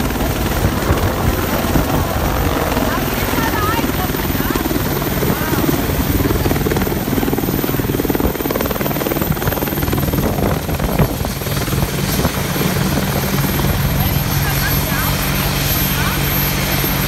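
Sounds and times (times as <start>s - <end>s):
helicopter engines running: 0.0s - 17.0s
helicopter rotor beating: 0.0s - 17.0s.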